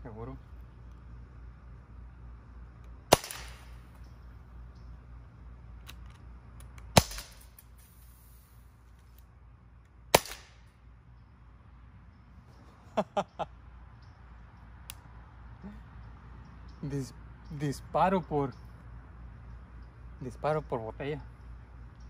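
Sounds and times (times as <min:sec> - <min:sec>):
air pistol shots: 0:03.1 - 0:03.8, 0:06.9 - 0:07.6, 0:10.1 - 0:10.7.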